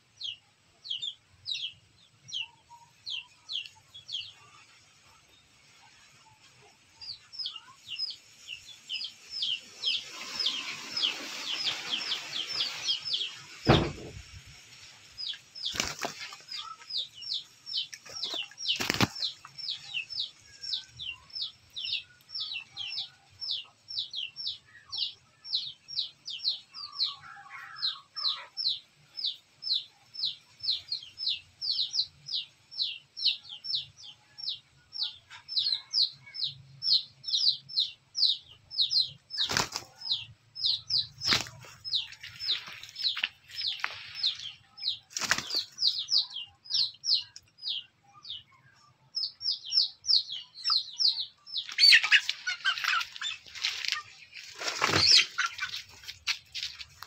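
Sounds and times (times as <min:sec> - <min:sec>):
bird chirping: 0:00.0 - 0:57.0
chickens scuffling with flapping wings: 0:09.8 - 0:19.9, 0:39.0 - 0:40.3, 0:40.9 - 0:46.0, 0:51.6 - 0:57.0
sharp knocks: 0:13.7 - 0:14.2.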